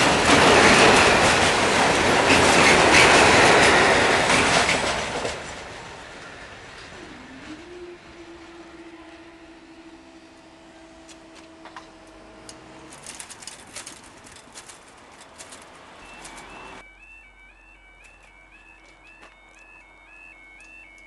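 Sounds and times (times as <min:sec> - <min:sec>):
barrier motor hum: 0:06.4 - 0:21.0.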